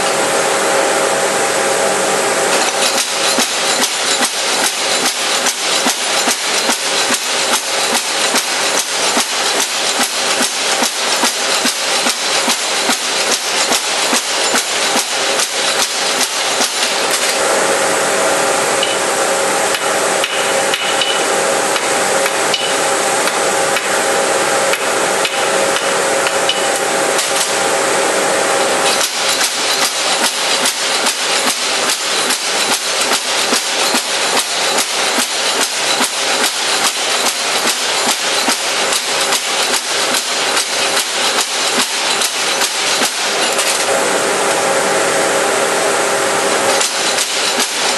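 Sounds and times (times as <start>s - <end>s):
forging hammer striking steel: 2.5s - 17.4s, 18.8s - 24.0s, 24.7s - 27.6s, 28.6s - 43.9s.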